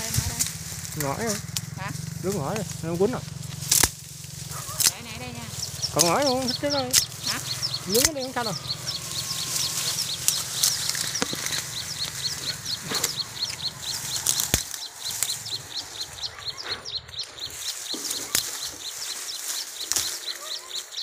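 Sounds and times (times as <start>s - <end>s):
reeds snapping and cracking: 0.0s - 16.3s, 17.0s - 21.0s
dry reeds rustling: 0.0s - 21.0s
high repeating chirp: 4.4s - 21.0s.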